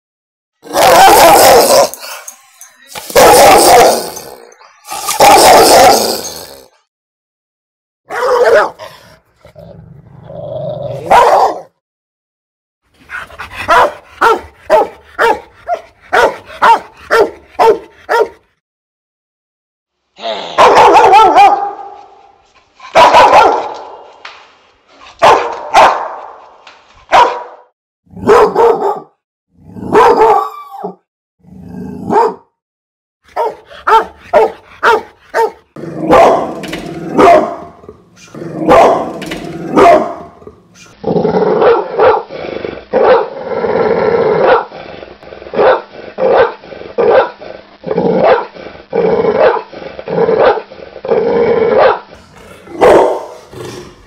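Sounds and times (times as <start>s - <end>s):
dogs barking: 0.6s - 1.9s, 3.0s - 4.3s, 5.0s - 6.0s, 8.1s - 8.9s, 11.0s - 11.7s, 13.1s - 18.4s, 20.6s - 22.0s, 22.9s - 24.1s, 25.2s - 26.4s, 27.1s - 27.6s, 28.2s - 29.2s, 29.9s - 31.0s, 32.1s - 32.5s, 33.3s - 40.5s, 41.6s - 42.3s, 43.0s - 43.3s, 44.4s - 44.7s, 45.5s - 47.4s, 48.2s - 48.6s, 49.4s - 49.7s, 50.4s - 50.7s, 51.7s - 54.0s
dogs growling: 0.6s - 6.7s, 8.8s - 11.1s, 33.7s - 41.6s, 42.2s - 54.0s
dog barking in quick volleys: 3.1s - 4.0s, 8.1s - 8.8s, 11.0s - 11.7s, 13.7s - 18.4s, 20.6s - 22.0s, 22.9s - 23.9s, 25.2s - 26.3s, 27.1s - 27.6s, 28.2s - 29.1s, 29.9s - 30.5s, 32.1s - 32.4s, 33.4s - 36.5s, 37.2s - 37.6s, 38.6s - 39.1s, 39.7s - 40.2s, 41.6s - 42.3s, 44.4s - 44.7s, 45.6s - 47.3s, 51.8s - 52.0s, 52.8s - 53.3s.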